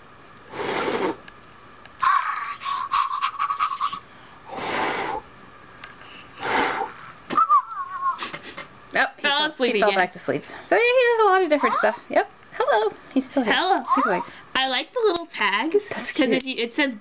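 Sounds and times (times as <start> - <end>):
short breaths blown: 4.5 - 5.2.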